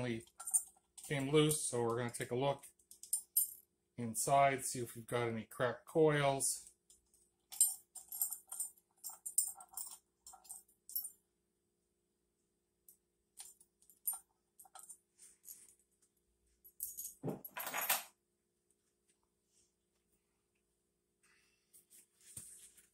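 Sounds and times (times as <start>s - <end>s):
metal tool clinking on steel: 0.2s - 1.4s.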